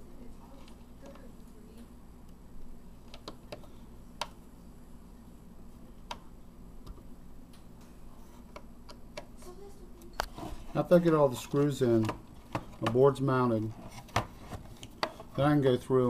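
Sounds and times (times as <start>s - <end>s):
faint steady low hum: 0.0s - 16.0s.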